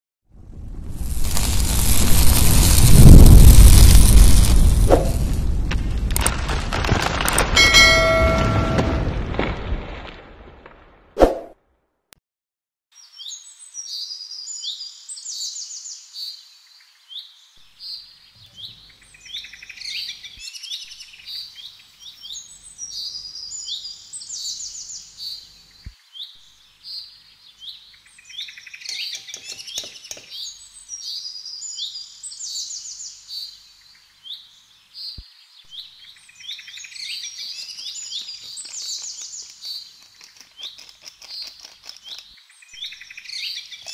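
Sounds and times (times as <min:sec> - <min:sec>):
small birds chirping: 0:12.9 - 0:43.9.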